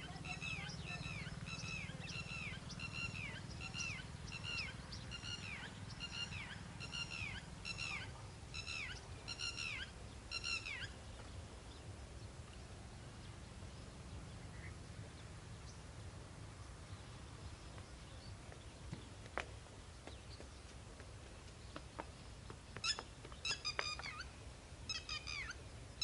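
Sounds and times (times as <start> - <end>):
bird calling: 0.0 - 11.0, 22.8 - 25.6.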